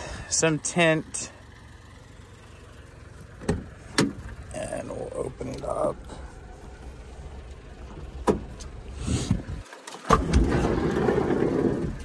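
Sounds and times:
sliding door rumbling open: 9.1 - 12.0.

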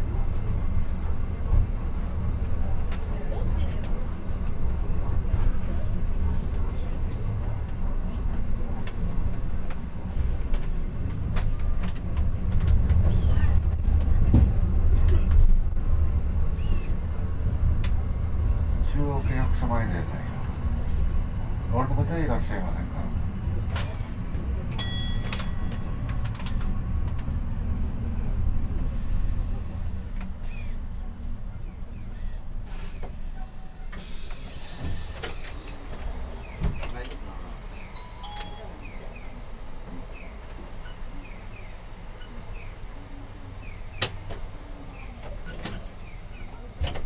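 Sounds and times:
streetcar rumbling on rails: 0.0 - 47.0
faint high chirps: 37.8 - 39.4
short ringing tone: 38.0 - 39.0.

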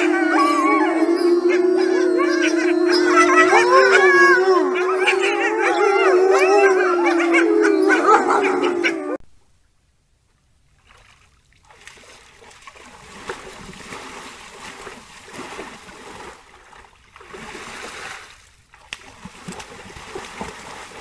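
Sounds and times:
deer splashing in water: 10.8 - 21.0.

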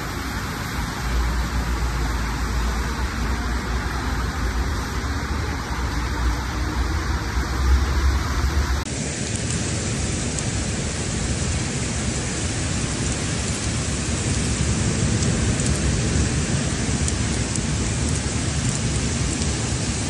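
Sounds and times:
heavy rain pouring: 0.0 - 20.0.

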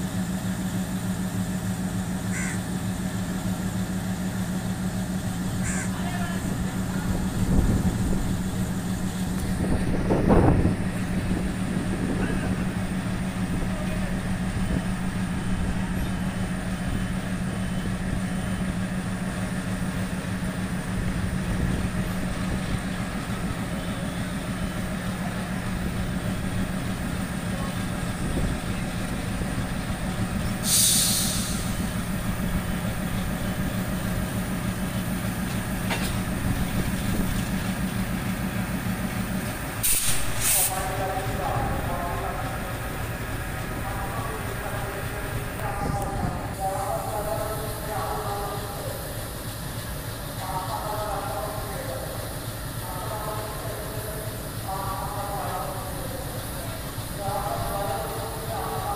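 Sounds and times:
diesel locomotive engine humming: 0.0 - 58.9
air brake hiss: 30.6 - 31.8, 39.8 - 40.8.

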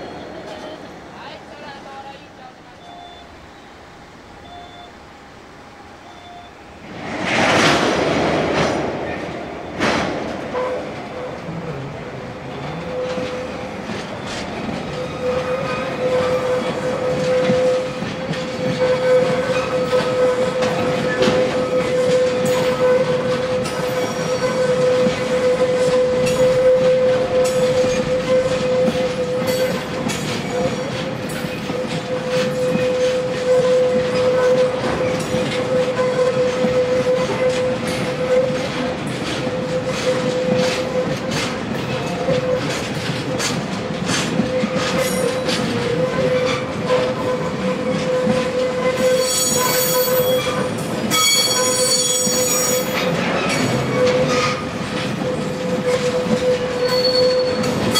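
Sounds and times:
train wheels clicking over rail joints: 6.8 - 57.9
high-pitched wheel squeal: 44.6 - 54.6, 55.9 - 57.7.

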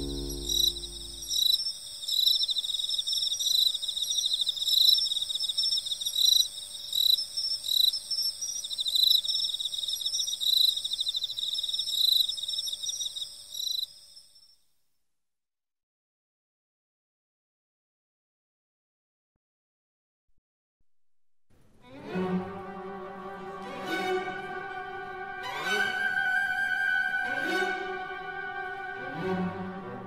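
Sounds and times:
soft music: 0.0 - 1.4, 21.8 - 30.0
constant high ringing: 0.0 - 1.9
insects chirping: 0.0 - 14.6.

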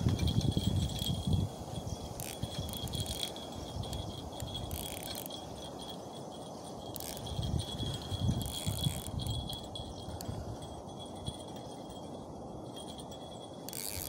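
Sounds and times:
wind buffeting microphone: 0.0 - 14.0
fishing reel parts clicking: 2.1 - 12.0, 12.7 - 14.0.

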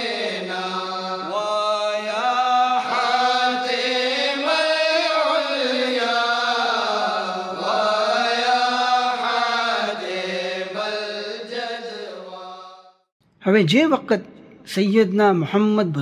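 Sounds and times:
person chanting melodically: 0.0 - 12.7.

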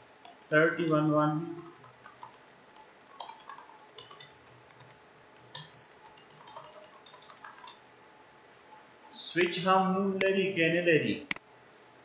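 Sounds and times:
keyboard typing: 1.5 - 7.8.

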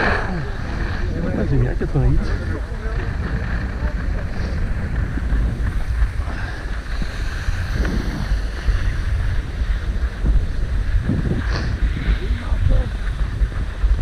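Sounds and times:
skis sliding on snow: 0.0 - 14.0
wind buffeting microphone: 0.0 - 14.0.

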